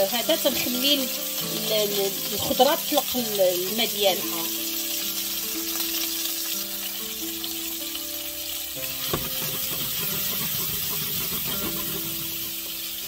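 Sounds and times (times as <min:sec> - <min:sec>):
potatoes sizzling in oil: 0:00.0 - 0:13.0
soft background music: 0:00.0 - 0:13.0
potatoes sliding against metal pan: 0:08.8 - 0:13.0
pan knocking: 0:09.0 - 0:12.9.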